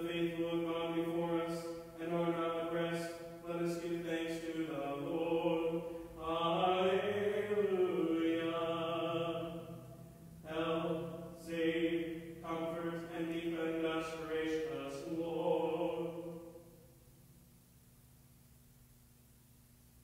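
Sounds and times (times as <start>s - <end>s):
man chanting prayer: 0.0s - 9.8s, 10.4s - 16.5s.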